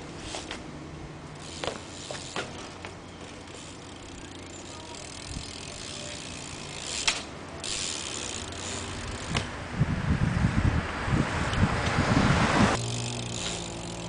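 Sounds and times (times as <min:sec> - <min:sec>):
bike hub ratcheting: 0:01.3 - 0:09.5, 0:12.7 - 0:14.0.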